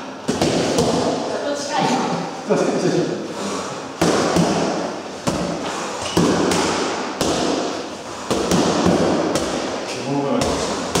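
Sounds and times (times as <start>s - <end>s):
boxing gloves hitting focus mitts: 0.2s - 1.2s, 4.0s - 11.0s.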